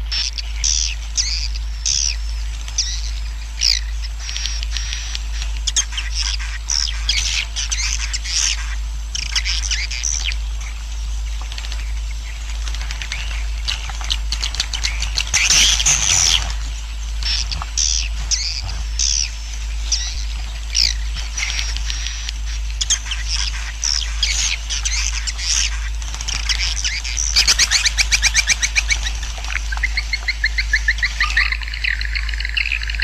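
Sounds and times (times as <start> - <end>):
steady low hum: 0.0 - 33.0
swiftlets twittering: 12.1 - 33.0.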